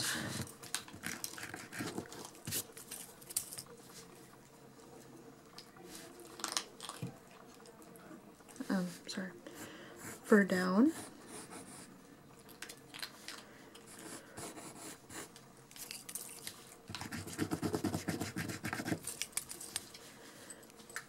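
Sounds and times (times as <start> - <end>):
pencil scratching on paper: 10.9 - 11.9, 14.0 - 15.3, 17.0 - 19.0.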